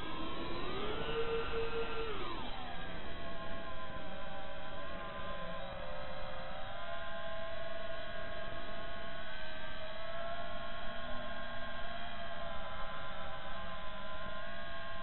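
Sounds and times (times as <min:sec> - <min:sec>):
drone motors whining: 0:00.0 - 0:11.7.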